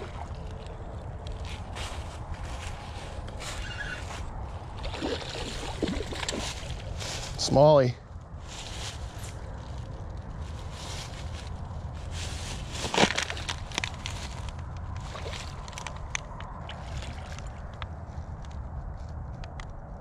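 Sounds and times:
steady low rumble: 0.0 - 20.0
footsteps crunching dry leaves: 1.3 - 7.7, 8.4 - 16.1.

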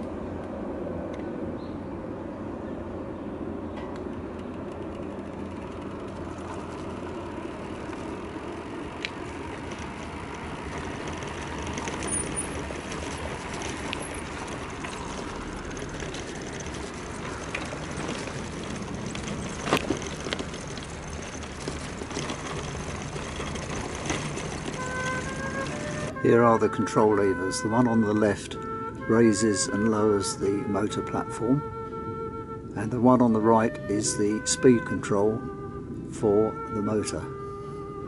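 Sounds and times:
tyre and road noise: 0.0 - 38.0
electric motor whine: 5.0 - 26.2.

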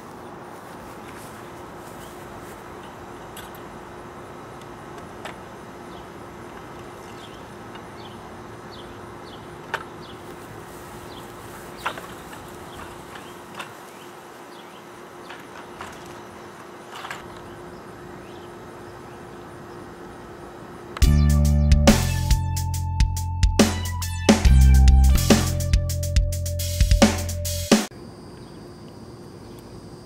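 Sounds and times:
insect drone: 27.9 - 30.0.

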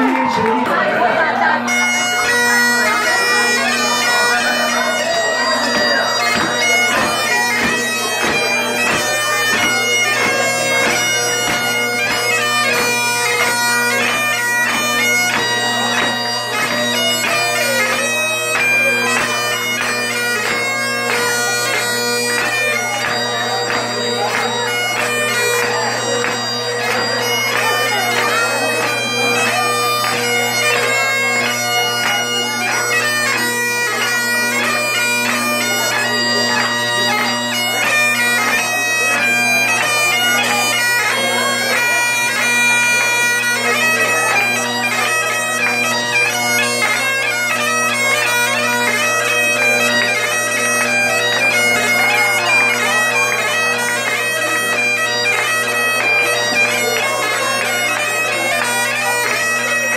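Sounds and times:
bagpipes playing a tune: 0.0 - 59.9.

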